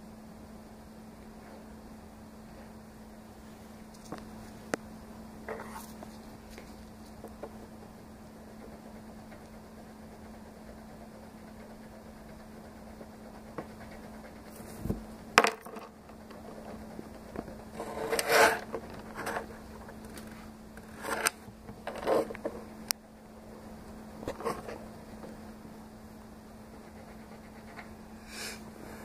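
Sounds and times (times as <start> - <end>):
steady low hum: 0.0 - 29.0
palette knife scraping: 5.5 - 7.2, 16.2 - 22.6.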